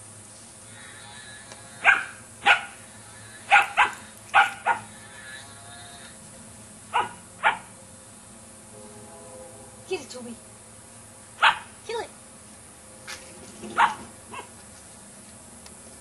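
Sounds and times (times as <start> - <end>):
puppy barking: 1.8 - 2.8, 3.5 - 5.0, 6.9 - 7.7, 11.4 - 11.7, 13.7 - 14.5.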